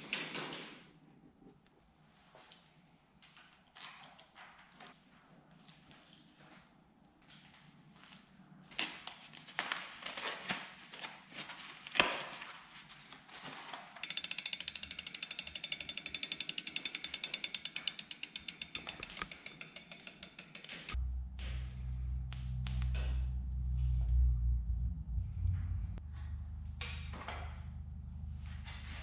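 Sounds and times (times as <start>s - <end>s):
bike freehub ticking: 14.0s - 21.0s.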